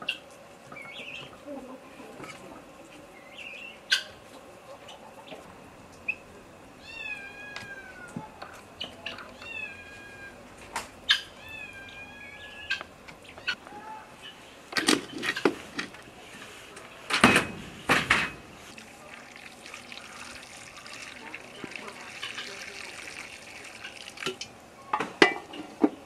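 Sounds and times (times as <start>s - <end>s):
cat meowing: 6.8s - 8.4s, 9.3s - 10.5s, 11.4s - 12.7s.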